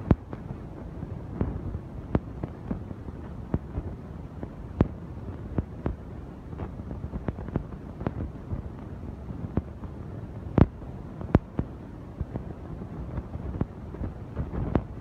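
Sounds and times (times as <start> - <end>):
low background noise: 0.0 - 15.0.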